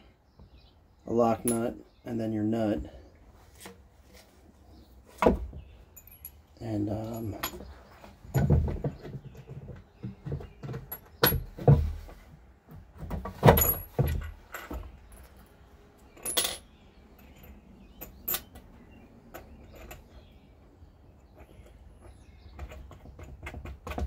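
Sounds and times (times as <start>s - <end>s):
small metallic clinks: 5.9s - 8.4s, 13.6s - 18.6s.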